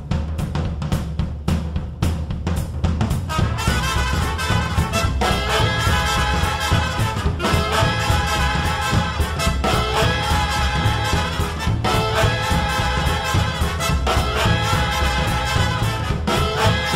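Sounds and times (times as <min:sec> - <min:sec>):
steady drum beat: 0:00.0 - 0:16.9
brass horns playing: 0:03.3 - 0:16.9.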